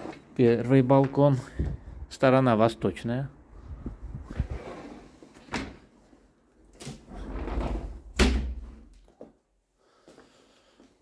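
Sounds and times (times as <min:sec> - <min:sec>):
door closing thud: 0:07.6 - 0:08.8.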